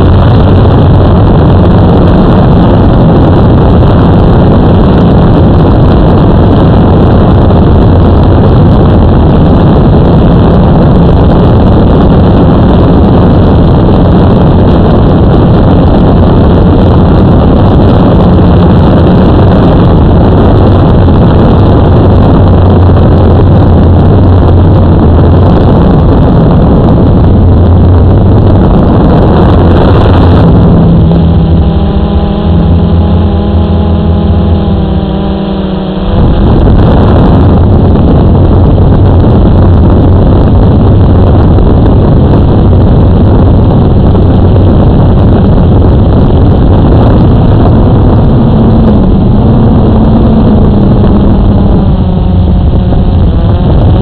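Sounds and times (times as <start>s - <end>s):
quadcopter propellers buzzing: 0.0s - 54.0s.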